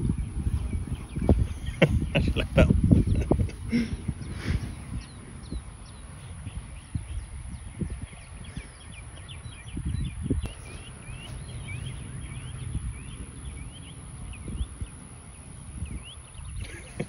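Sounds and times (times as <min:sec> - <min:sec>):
birds chirping: 0:00.0 - 0:17.0
steady high whine: 0:00.0 - 0:17.0.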